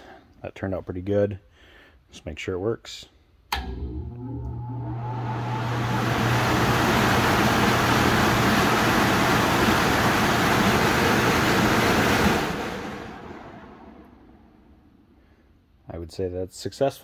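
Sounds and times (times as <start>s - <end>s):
blower fan motor humming: 3.5s - 14.8s
air rushing through fan housing: 4.8s - 14.6s.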